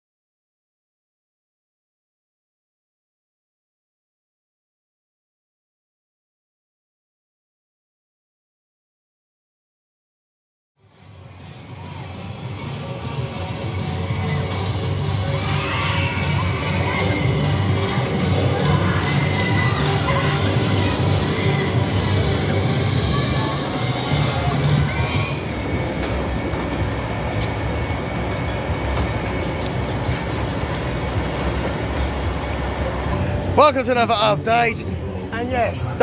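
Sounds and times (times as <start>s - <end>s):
faint steady whine: 10.8s - 36.0s
machinery rumble: 10.8s - 36.0s
riders screaming and shouting: 11.0s - 33.9s.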